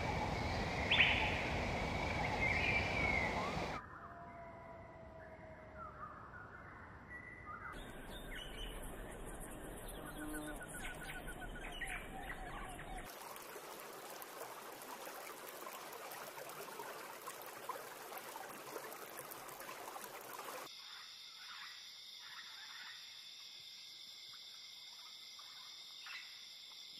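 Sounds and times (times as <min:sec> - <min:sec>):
birds calling and chirping: 0:00.0 - 0:03.8.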